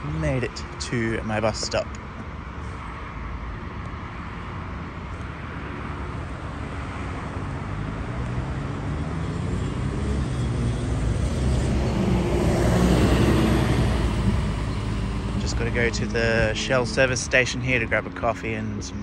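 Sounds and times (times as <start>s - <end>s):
road traffic passing: 0.0s - 19.0s
bus engine pulling away: 7.6s - 18.3s.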